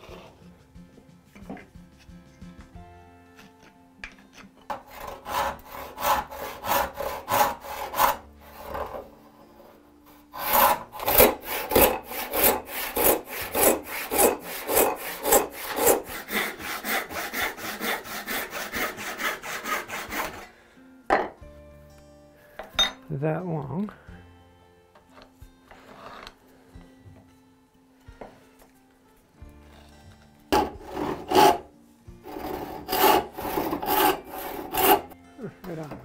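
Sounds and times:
backsaw crosscutting wood: 0:04.7 - 0:09.1, 0:10.3 - 0:20.5, 0:30.5 - 0:35.9
handsaw cutting wood: 0:04.7 - 0:09.2, 0:10.1 - 0:20.5, 0:30.5 - 0:35.2.

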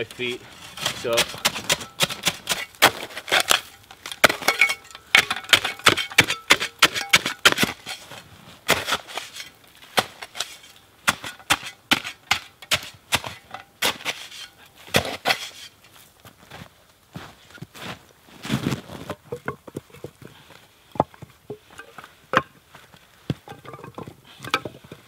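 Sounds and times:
metal shovel scraping snow: 0:00.0 - 0:16.1, 0:17.8 - 0:19.2.

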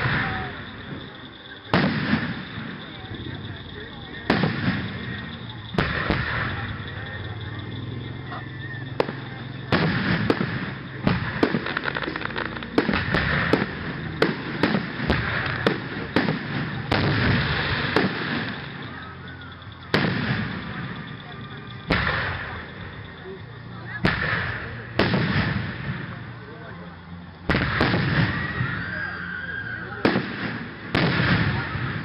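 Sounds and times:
firework shells bursting: 0:00.0 - 0:23.2.

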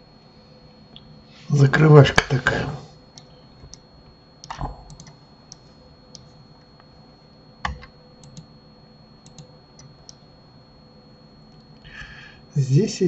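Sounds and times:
faint high whine: 0:00.0 - 0:13.0
keyboard and mouse clicks: 0:04.4 - 0:06.3, 0:07.6 - 0:08.5, 0:09.2 - 0:10.2.

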